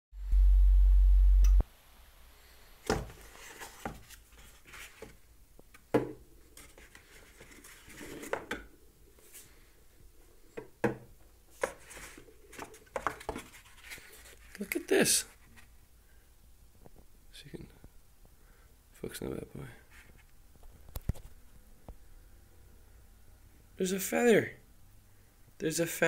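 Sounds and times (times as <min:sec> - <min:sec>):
egg carton handled: 0:11.6 - 0:14.6.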